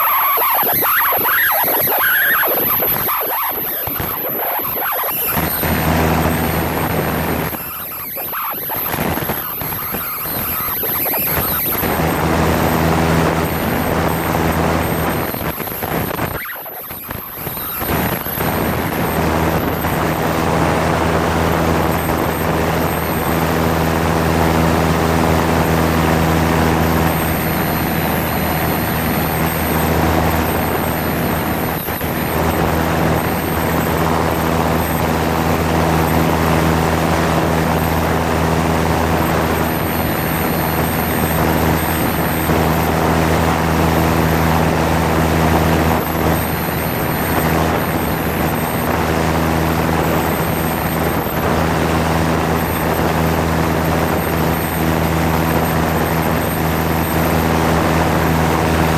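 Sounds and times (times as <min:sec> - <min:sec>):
airplane engine humming: 0:04.3 - 0:16.1.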